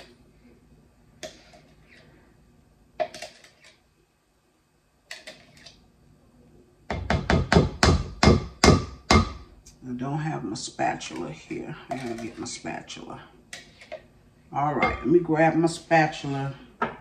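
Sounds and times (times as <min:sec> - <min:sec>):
spoon scraping plastic container: 0:11.1 - 0:12.6.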